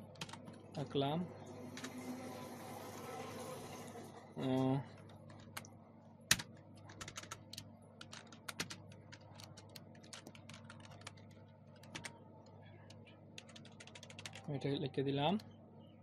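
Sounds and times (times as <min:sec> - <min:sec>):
typing on a keyboard: 0:00.1 - 0:00.6, 0:06.3 - 0:12.2, 0:12.9 - 0:14.5.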